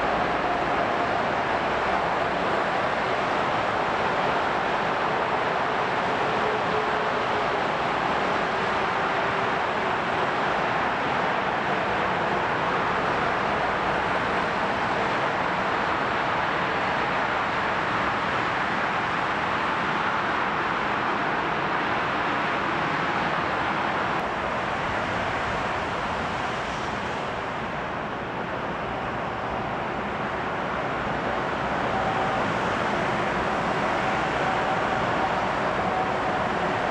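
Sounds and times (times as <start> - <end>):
distant airliner jet engines: 0.0 - 36.9.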